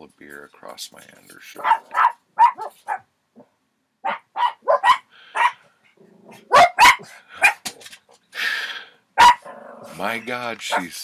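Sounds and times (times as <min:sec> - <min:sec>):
dogs barking: 0:01.6 - 0:03.1, 0:04.0 - 0:05.6, 0:06.3 - 0:07.6, 0:09.2 - 0:09.9, 0:10.6 - 0:11.0.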